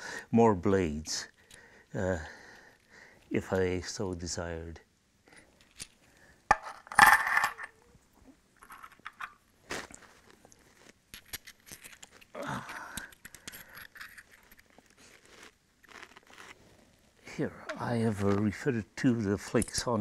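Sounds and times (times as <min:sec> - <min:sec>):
stone clatter: 0:06.5 - 0:07.8
stone flakes clicking together: 0:11.1 - 0:14.8.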